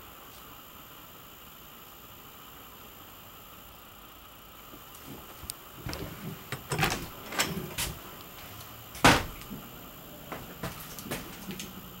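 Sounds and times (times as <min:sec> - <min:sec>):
door clicks and knocks: 0:05.9 - 0:08.0, 0:09.0 - 0:09.6.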